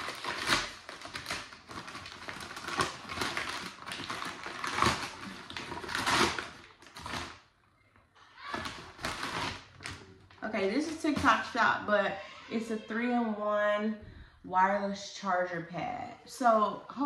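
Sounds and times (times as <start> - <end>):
paper packaging crinkling and tearing: 0.0 - 7.6, 8.4 - 11.6.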